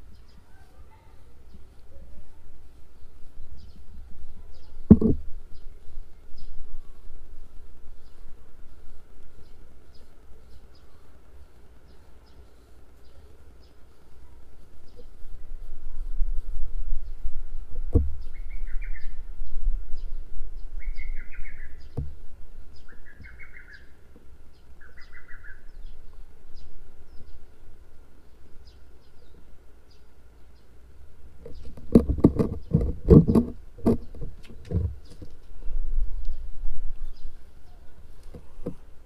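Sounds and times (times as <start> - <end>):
small bird chirping: 0.0 - 27.6, 28.3 - 33.3, 33.9 - 38.9
faint high hum: 0.0 - 39.0
knocks and rubbing on microphone: 2.7 - 6.1, 14.8 - 18.8, 21.8 - 22.3, 31.4 - 35.4, 38.1 - 38.9
soft thumps: 4.7 - 5.4, 17.8 - 18.4, 21.9 - 22.2, 31.4 - 35.4.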